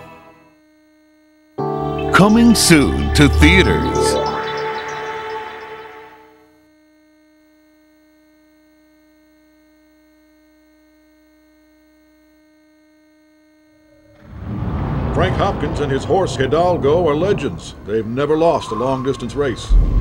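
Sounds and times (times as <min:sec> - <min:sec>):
music: 0:00.0 - 0:00.5, 0:01.6 - 0:06.5
faint tape playback hum: 0:00.0 - 0:19.6.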